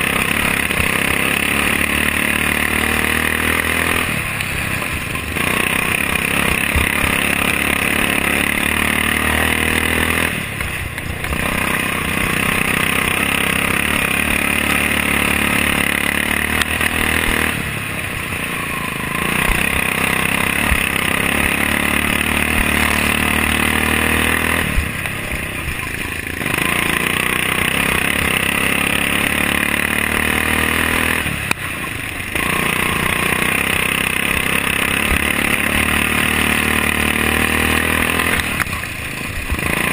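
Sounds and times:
lawn mower engine at full throttle: 0:00.0 - 0:39.9.

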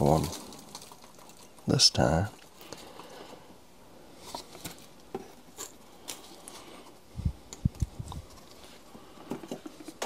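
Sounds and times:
dry leaves crackling and rustling: 0:00.0 - 0:01.8.

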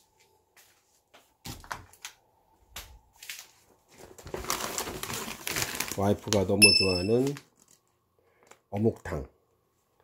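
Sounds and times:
shopping bag rustling: 0:03.9 - 0:07.8.

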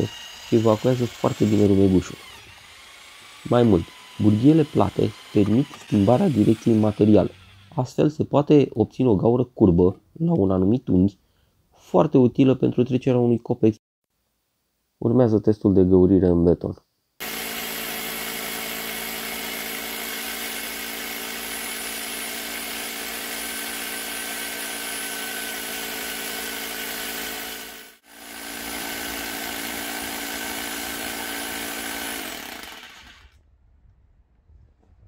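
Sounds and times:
rotary hammer drilling into concrete: 0:00.0 - 0:07.8, 0:17.2 - 0:33.4.

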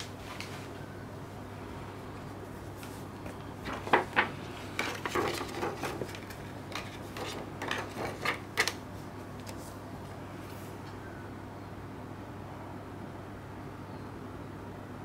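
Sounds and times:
plastic sleeve crinkling and clicking: 0:03.3 - 0:08.8.

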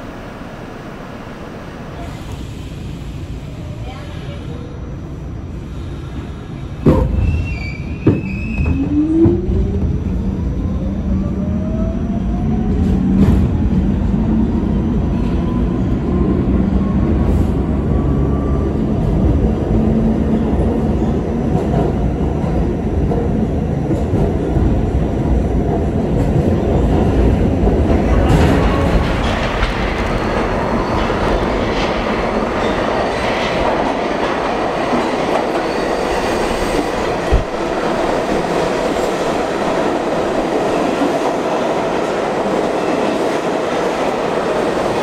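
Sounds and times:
wheels rumbling on rail: 0:00.0 - 0:45.0.

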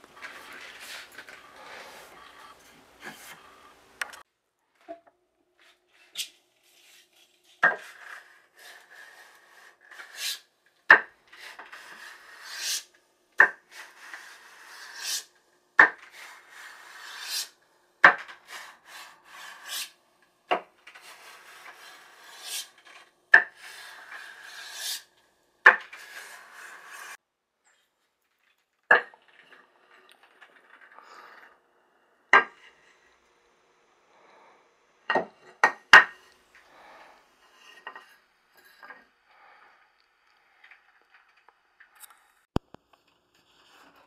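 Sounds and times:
hand file scraping wood: 0:00.0 - 0:04.2, 0:05.6 - 0:10.5, 0:11.3 - 0:20.0, 0:20.9 - 0:25.1, 0:25.7 - 0:27.2.

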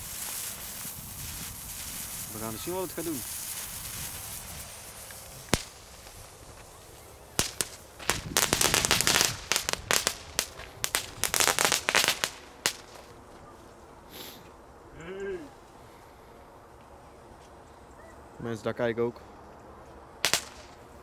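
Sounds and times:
firecrackers cracking and banging: 0:00.0 - 0:13.2, 0:20.2 - 0:20.8.

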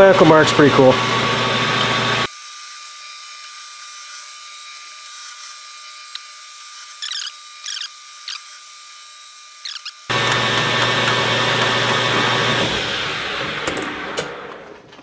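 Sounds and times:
drill squeaky scraping: 0:02.5 - 0:10.1.

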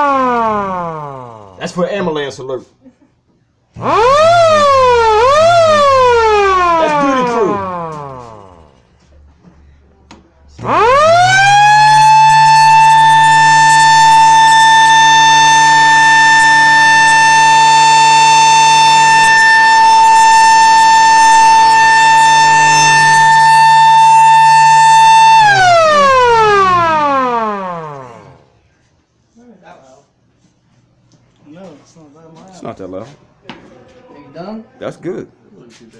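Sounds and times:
mechanical siren wailing: 0:00.0 - 0:01.8, 0:03.8 - 0:08.9, 0:10.6 - 0:28.6.

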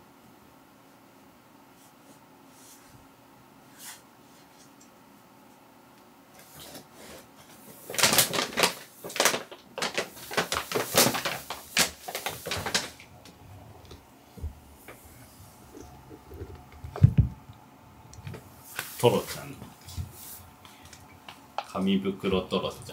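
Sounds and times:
paper bag crinkling: 0:07.6 - 0:13.3.

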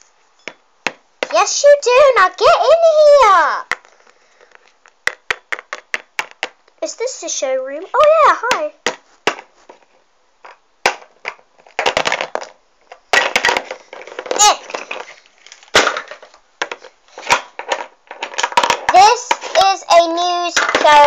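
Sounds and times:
plastic toys clicking on tabletop: 0:16.6 - 0:19.7.

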